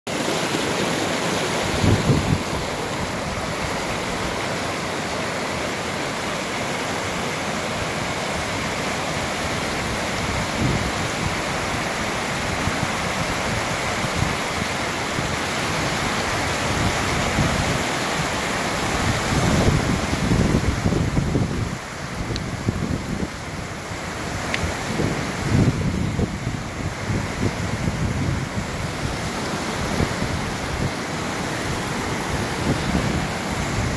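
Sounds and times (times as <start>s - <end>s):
stream rushing over rocks: 0.1s - 33.9s
wind buffeting microphone: 1.6s - 3.9s, 9.6s - 31.0s.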